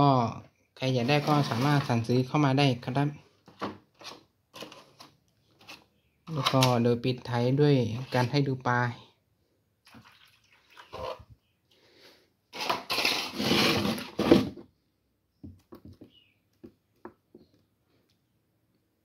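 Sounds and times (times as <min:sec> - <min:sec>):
water pouring into tub: 0:09.8 - 0:11.2.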